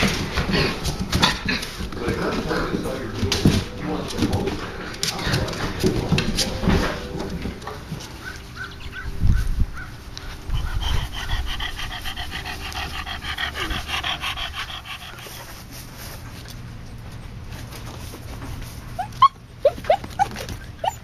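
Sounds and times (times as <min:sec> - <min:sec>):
puppies panting: 0:00.0 - 0:21.0
high whimpering squeaks: 0:19.0 - 0:21.0.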